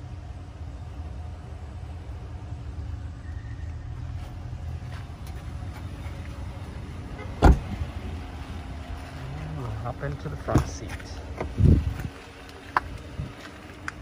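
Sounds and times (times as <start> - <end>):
steady low rumble: 0.0 - 14.0
car door shutting with a thud: 7.2 - 7.8.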